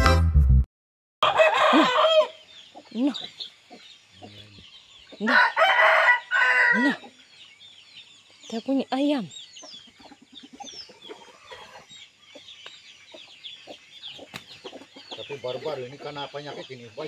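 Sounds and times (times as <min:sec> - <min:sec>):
rooster crowing: 0:01.2 - 0:02.5, 0:05.2 - 0:07.1
chickens clucking: 0:01.2 - 0:17.0.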